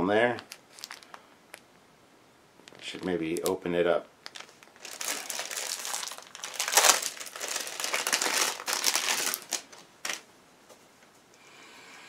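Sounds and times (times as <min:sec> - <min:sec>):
plastic bag crinkling: 0:00.4 - 0:01.6, 0:02.6 - 0:10.3.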